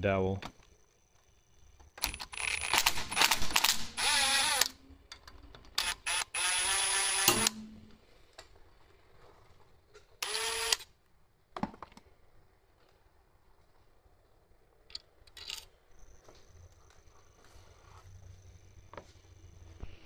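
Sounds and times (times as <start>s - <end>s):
cordless drill whining: 2.0s - 4.8s, 5.8s - 7.6s, 10.2s - 10.9s
sharp metallic click: 7.2s - 7.8s.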